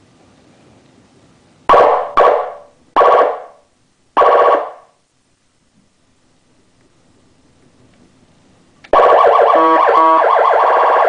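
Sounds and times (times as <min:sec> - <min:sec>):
electronic air horn blasts: 0:09.0 - 0:11.0.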